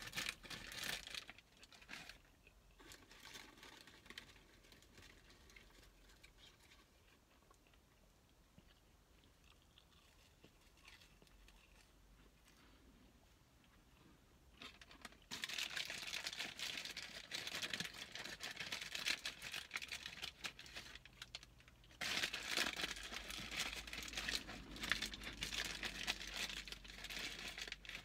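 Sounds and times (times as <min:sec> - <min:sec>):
paper packaging rustling: 0:14.6 - 0:28.0.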